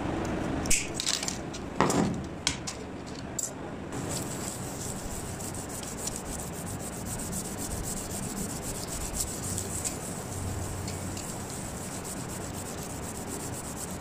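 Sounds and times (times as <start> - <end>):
brass rubbed on sandpaper: 4.0 - 14.0.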